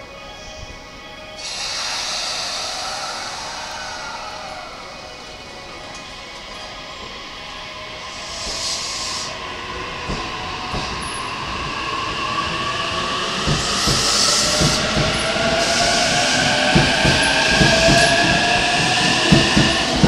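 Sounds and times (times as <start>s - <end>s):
short hisses: 1.4s - 4.6s.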